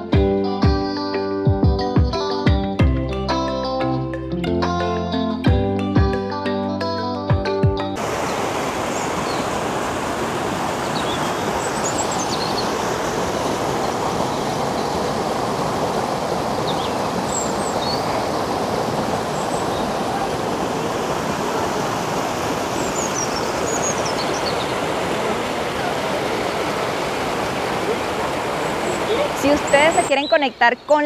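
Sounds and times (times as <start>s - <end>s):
stream rushing over rocks: 8.0s - 30.4s.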